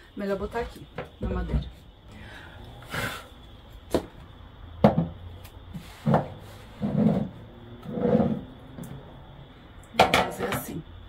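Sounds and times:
tableware knocking on wooden table: 0:04.8 - 0:05.2.

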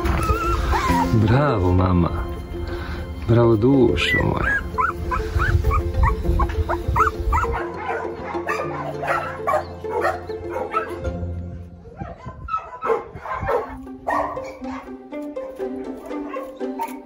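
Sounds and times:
background music: 0:00.0 - 0:17.0
dog whimpering: 0:00.1 - 0:01.1, 0:04.0 - 0:07.7
dog barking: 0:07.0 - 0:11.0, 0:11.9 - 0:15.0, 0:15.8 - 0:17.0.

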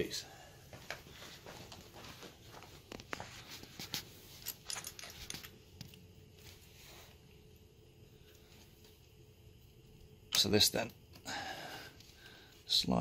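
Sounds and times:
metal parts clicking: 0:04.4 - 0:05.6.

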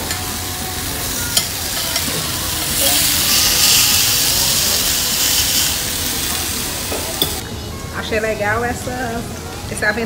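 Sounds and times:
steak sizzling on hot iron plate: 0:00.0 - 0:07.4.

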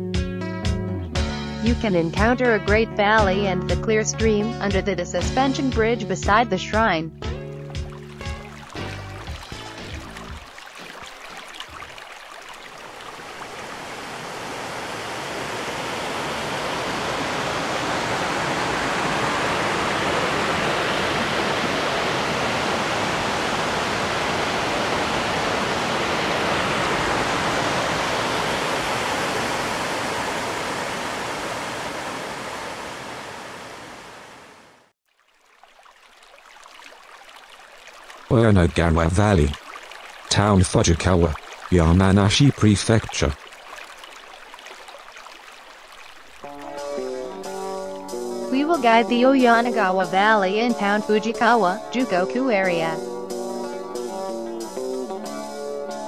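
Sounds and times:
mountain stream rushing over boulders: 0:07.8 - 0:34.9, 0:35.6 - 0:47.4.

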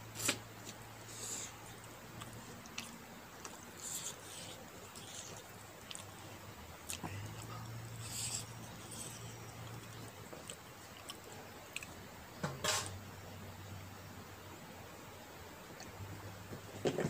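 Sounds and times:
low steady hum: 0:00.0 - 0:17.0
soft chewing: 0:00.1 - 0:12.0.

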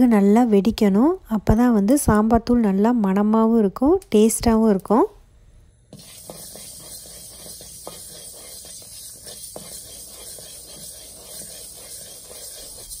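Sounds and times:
seeds scraping over a pan: 0:06.0 - 0:13.0.

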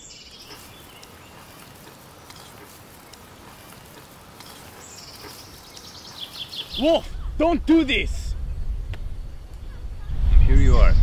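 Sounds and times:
rustling of grass and rope: 0:00.0 - 0:07.0
bird chirping: 0:00.0 - 0:07.4
steady outdoor hiss: 0:00.0 - 0:11.0
faint clicks: 0:00.4 - 0:06.7.

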